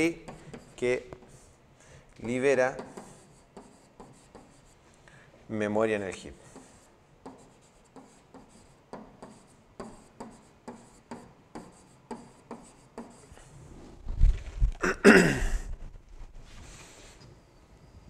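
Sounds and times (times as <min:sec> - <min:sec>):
stylus tapping and scratching on screen: 0:00.2 - 0:01.5, 0:02.2 - 0:04.8, 0:06.5 - 0:14.8
rustling whoosh: 0:13.5 - 0:14.8.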